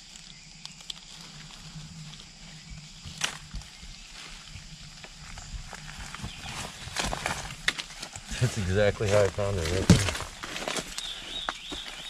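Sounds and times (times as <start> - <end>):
dry leaves rustling and crackling: 0.0 - 12.0
sharp crunch: 3.0 - 3.8, 5.0 - 12.0.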